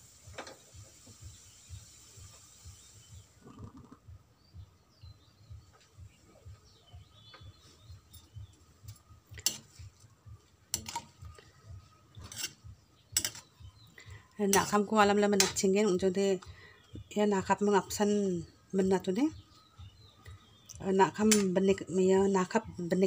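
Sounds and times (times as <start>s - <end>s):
faint bird chirps: 1.0s - 9.6s, 10.8s - 14.7s, 15.7s - 21.2s
metal spoon scraping wok: 9.4s - 9.8s, 10.7s - 11.2s, 12.1s - 13.5s.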